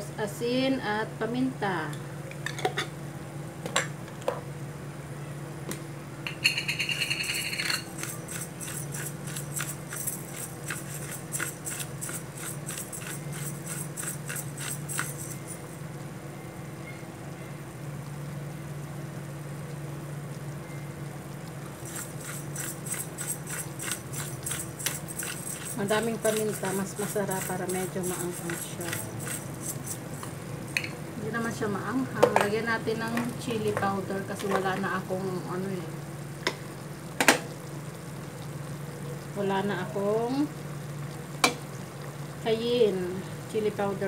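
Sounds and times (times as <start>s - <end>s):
steady low hum: 0.0s - 44.0s
dry ticking of salt sprinkling: 6.7s - 16.0s, 21.6s - 30.9s.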